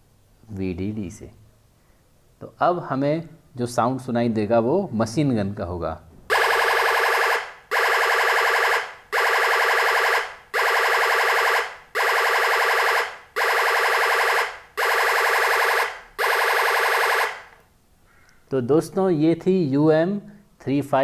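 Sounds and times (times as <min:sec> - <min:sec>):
electronic machine-gun rattling: 0:06.3 - 0:17.5.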